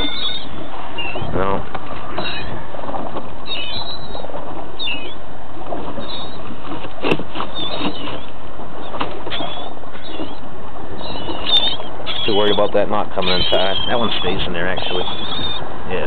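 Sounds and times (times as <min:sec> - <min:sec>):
high chirping bird calls: 0:00.0 - 0:01.5, 0:03.4 - 0:05.2, 0:07.5 - 0:15.7
boat engine running: 0:00.0 - 0:16.0
wind and water noise: 0:00.0 - 0:16.0.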